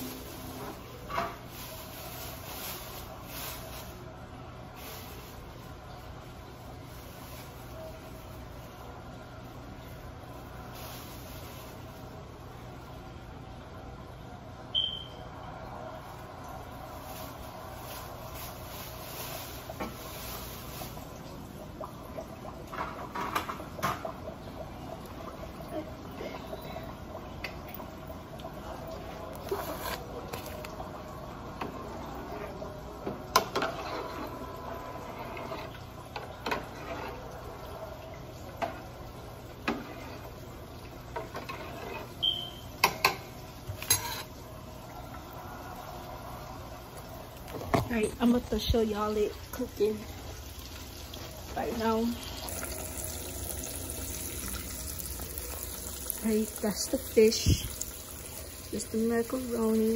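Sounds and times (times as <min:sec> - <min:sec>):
spoon stirring macaroni: 0:41.2 - 0:42.2.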